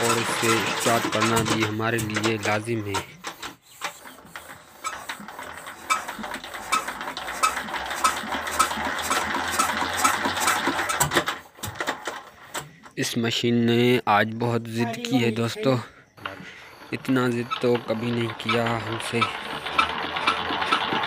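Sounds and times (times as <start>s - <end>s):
metallic clack of engine cranking: 0.0s - 3.1s.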